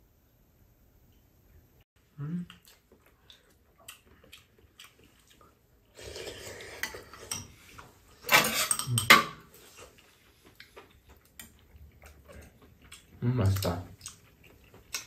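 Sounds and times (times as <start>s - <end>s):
spoons clinking against metal bowls: 8.2s - 9.4s.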